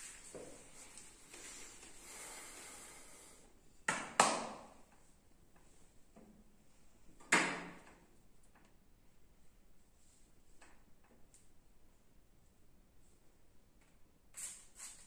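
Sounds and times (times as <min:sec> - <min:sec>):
soft hiss: 0:00.0 - 0:03.8.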